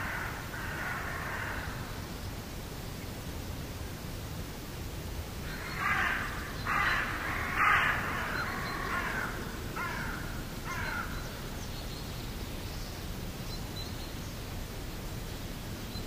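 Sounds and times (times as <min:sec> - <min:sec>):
bird calling: 0:05.5 - 0:11.4.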